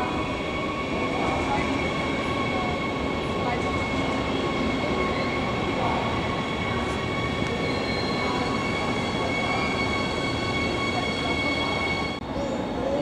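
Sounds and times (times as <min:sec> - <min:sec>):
high-pitched train whine: 0:00.0 - 0:13.0
train rolling noise: 0:00.0 - 0:13.0.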